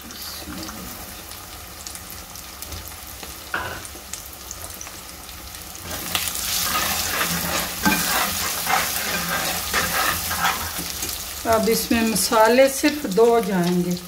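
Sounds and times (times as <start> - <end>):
eggs sizzling in oil: 0.0 - 14.0
steel spoon scraping a pot: 6.5 - 11.1.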